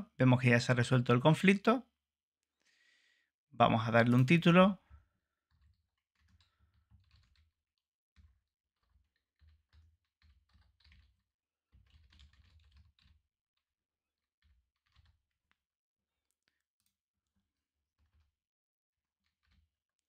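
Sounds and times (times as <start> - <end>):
faint keyboard typing: 3.7 - 13.3, 14.4 - 15.6.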